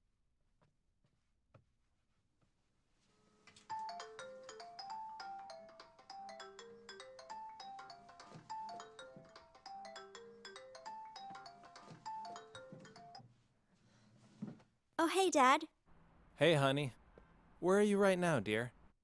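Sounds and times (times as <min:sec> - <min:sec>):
phone ringtone melody: 0:03.7 - 0:13.3.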